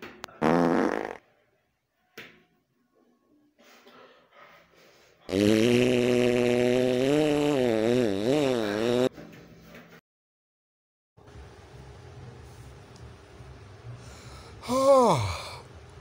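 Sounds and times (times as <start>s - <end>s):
long buzzing fart: 0.4s - 1.3s, 5.3s - 9.1s.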